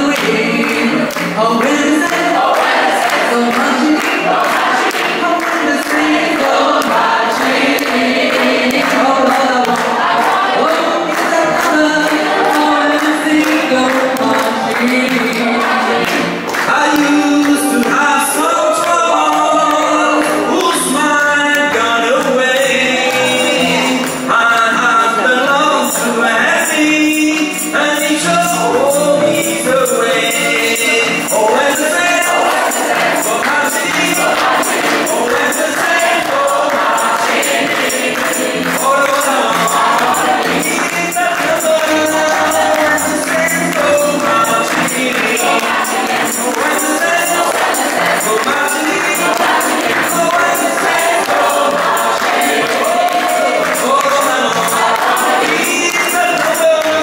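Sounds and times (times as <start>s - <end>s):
gospel choir singing: 0.0s - 57.0s
tambourine shaken and struck: 21.6s - 57.0s.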